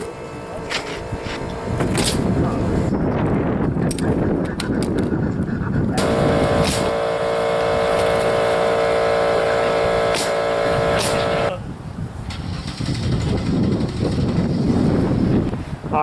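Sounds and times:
leaf blower running: 0:06.0 - 0:11.6.

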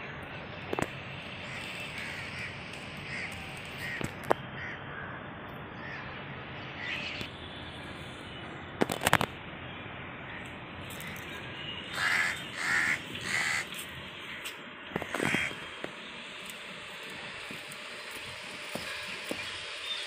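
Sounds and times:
crows cawing: 0:01.4 - 0:05.2, 0:05.8 - 0:06.1, 0:06.8 - 0:07.3, 0:10.3 - 0:15.8, 0:18.7 - 0:19.5.

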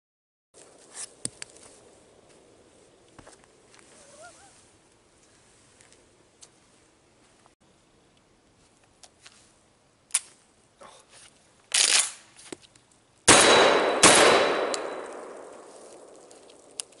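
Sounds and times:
shotgun blasts echoing: 0:13.3 - 0:16.2
gun handling clicks and rattle: 0:14.6 - 0:17.0.

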